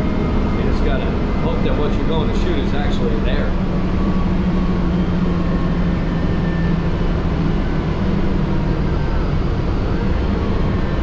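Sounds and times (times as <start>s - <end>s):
bus engine drone: 0.0s - 11.0s.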